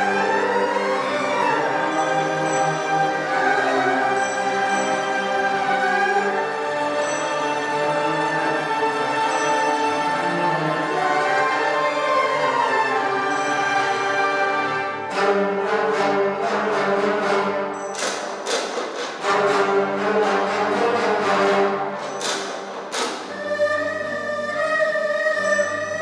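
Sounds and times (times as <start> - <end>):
traditional orchestra holding chords: 0.0 - 26.0
sharp repeated percussion strikes: 17.8 - 20.2, 21.5 - 23.4.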